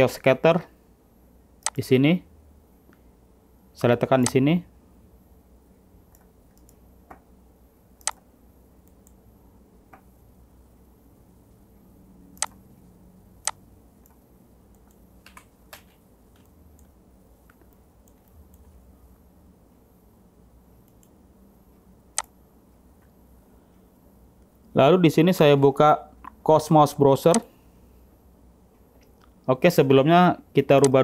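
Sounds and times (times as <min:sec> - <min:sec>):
faint low hum: 0:00.0 - 0:31.0
computer mouse clicking: 0:06.1 - 0:07.2, 0:08.0 - 0:08.2, 0:08.8 - 0:09.2, 0:12.4 - 0:12.6, 0:13.4 - 0:18.7.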